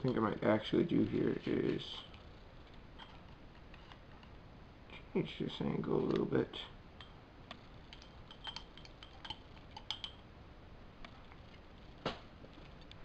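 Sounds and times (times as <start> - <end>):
metal clips clinking on glass jar: 7.9 - 10.2.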